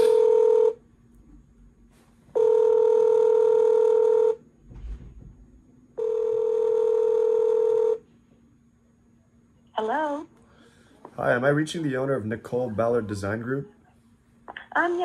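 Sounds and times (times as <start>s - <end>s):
phone ringback tone: 0.0s - 0.8s, 2.4s - 4.4s, 6.0s - 8.0s.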